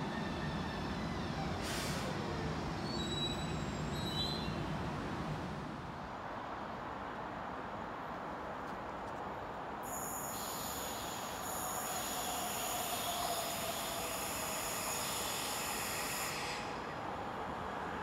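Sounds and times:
train wheel squeal and hiss: 0.0s - 4.6s, 9.8s - 17.1s.

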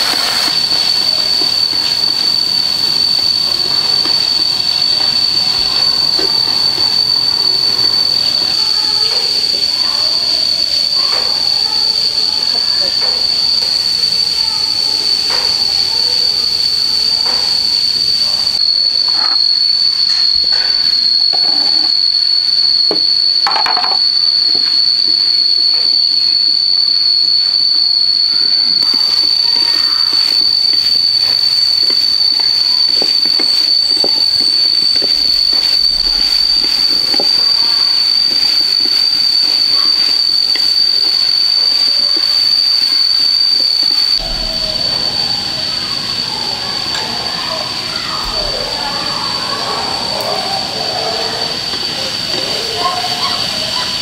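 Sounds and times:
shrill high-pitched drone: 0.0s - 54.0s.

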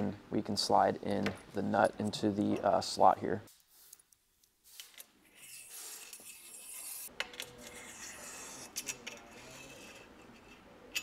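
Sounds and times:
nut scraping along metal rail: 5.4s - 11.0s.

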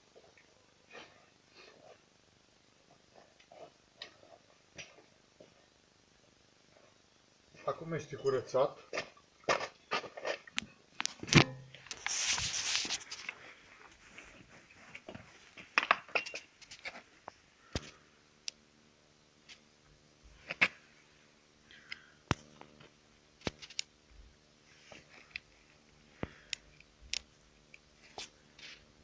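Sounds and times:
faint steady hum: 0.0s - 29.0s
rustling: 11.0s - 15.8s.

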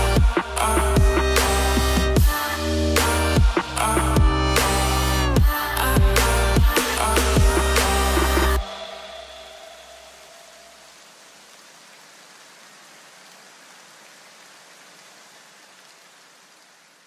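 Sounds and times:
even hiss: 0.0s - 17.0s.

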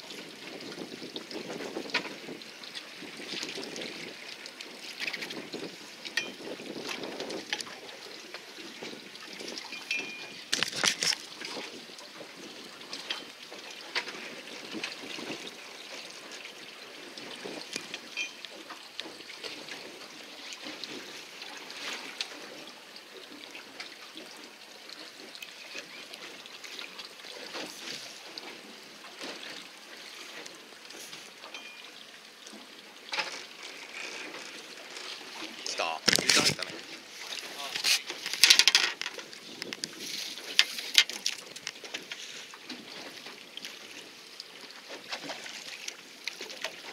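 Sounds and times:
water lapping against boat hull: 0.0s - 46.9s
small knocks and clicks: 37.8s - 42.2s.

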